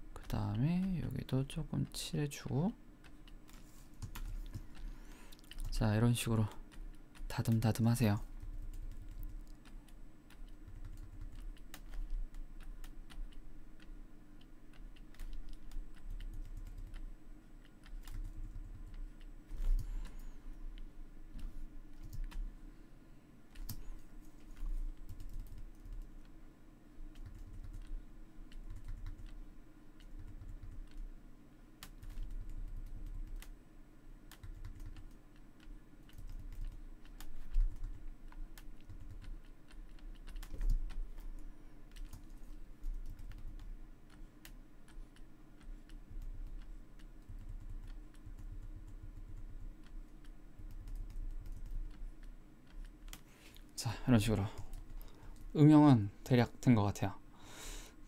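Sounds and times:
steady low hum: 0.0s - 58.0s
computer keyboard clicks: 3.0s - 5.8s, 6.7s - 13.9s, 14.7s - 17.1s, 17.7s - 20.3s, 24.6s - 26.3s, 27.1s - 29.4s, 30.0s - 31.1s, 31.8s - 33.6s, 34.3s - 53.2s.

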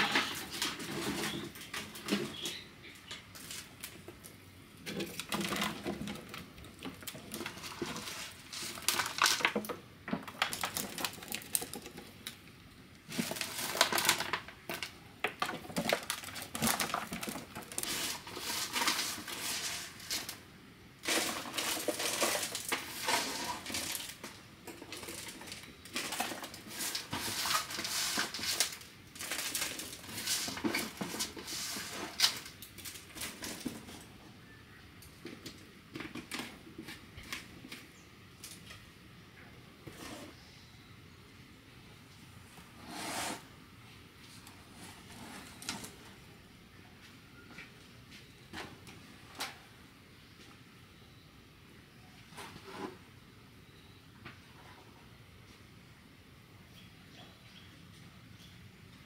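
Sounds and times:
plastic jar crackling and knocking: 0.0s - 12.4s, 13.0s - 20.4s, 21.0s - 34.1s.

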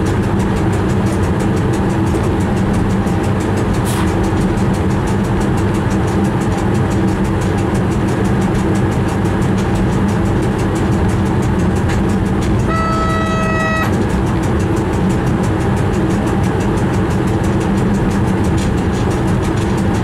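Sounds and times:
train rumbling on rails: 0.0s - 20.0s
train horn blast: 12.4s - 14.1s.

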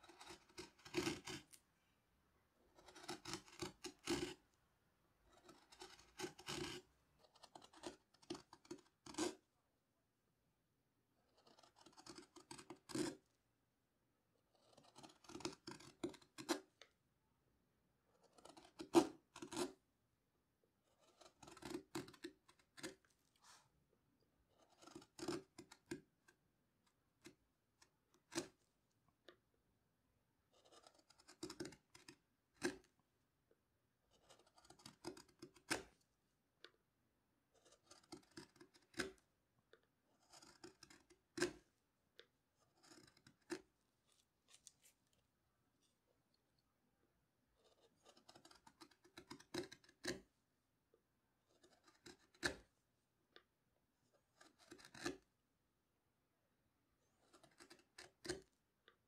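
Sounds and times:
gouge cutting wood shavings: 0.0s - 1.6s, 2.7s - 4.4s, 5.3s - 9.4s, 11.2s - 13.2s, 14.4s - 16.8s, 18.1s - 19.8s, 20.8s - 26.3s, 26.9s - 28.6s, 30.5s - 33.0s, 34.0s - 36.1s, 37.5s - 39.3s, 40.0s - 41.8s, 42.5s - 45.0s, 47.6s - 50.3s, 51.4s - 52.8s, 54.2s - 55.3s, 57.0s - 58.5s.

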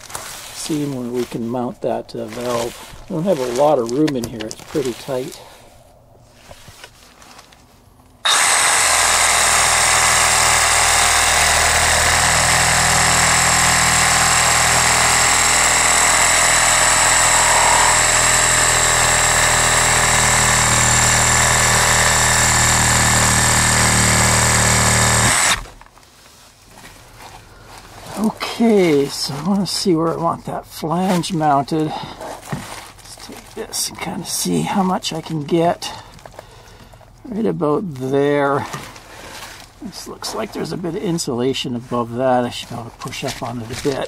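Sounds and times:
reciprocating saw cutting plastic pipe: 8.2s - 25.8s.

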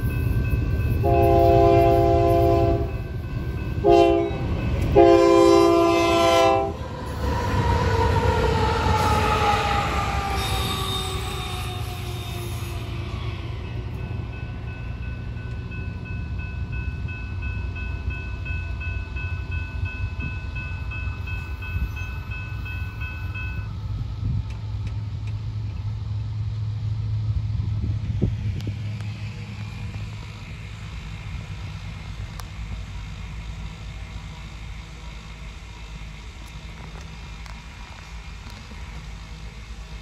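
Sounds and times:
steady high tone: 0.0s - 23.8s
locomotive engine rumble: 0.0s - 40.0s.

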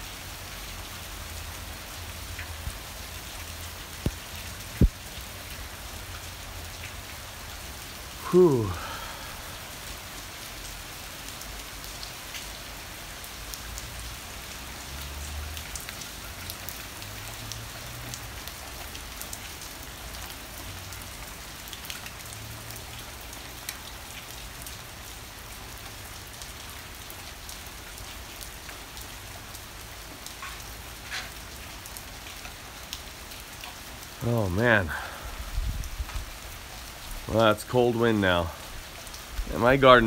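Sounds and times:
heavy rain pouring: 0.0s - 40.0s
wind gusts on microphone: 35.4s - 36.3s.

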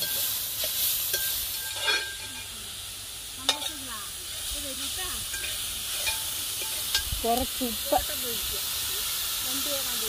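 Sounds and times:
spoon clacking against pan: 0.0s - 2.5s, 3.4s - 3.9s, 5.2s - 7.2s
leaves sizzling in hot oil: 0.0s - 10.0s.

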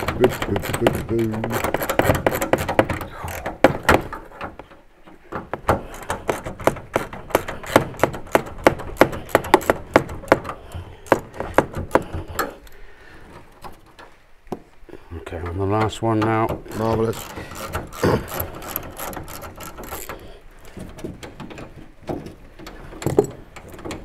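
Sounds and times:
knocks: 0.0s - 12.5s.

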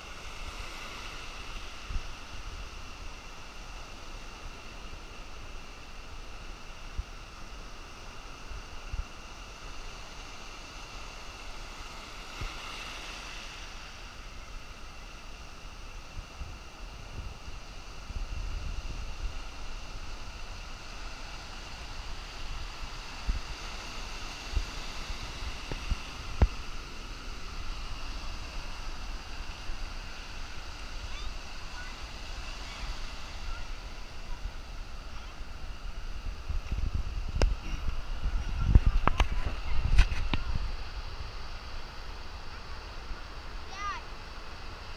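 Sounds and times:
ocean surf washing ashore: 0.0s - 44.9s
wind buffeting microphone: 16.0s - 43.5s.

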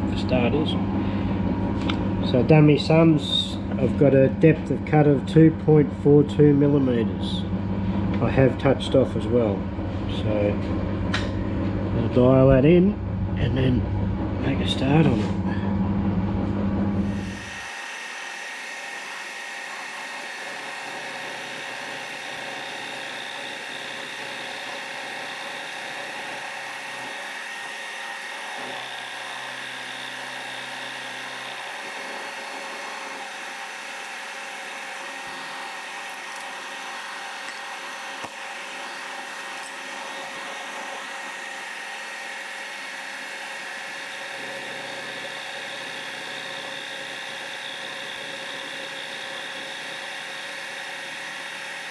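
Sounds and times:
milling machine cutting metal: 17.0s - 51.9s.

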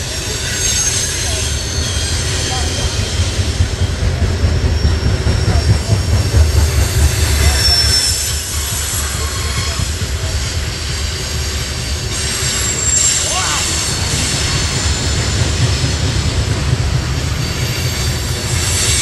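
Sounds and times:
high-pitched wheel squeals: 0.0s - 15.4s
steel wheels rumbling on rail: 0.0s - 19.0s.

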